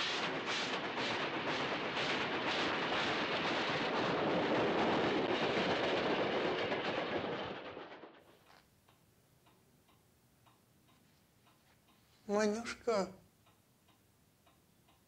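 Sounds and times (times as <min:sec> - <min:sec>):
steam locomotive chuffing: 0:00.0 - 0:08.4
clock ticking faintly: 0:08.7 - 0:15.0.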